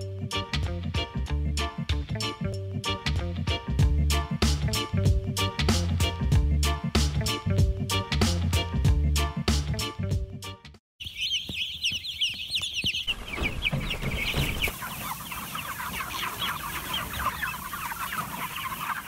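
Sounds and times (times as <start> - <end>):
music with a steady beat: 0.0 - 10.8
chickens calling: 11.0 - 19.0.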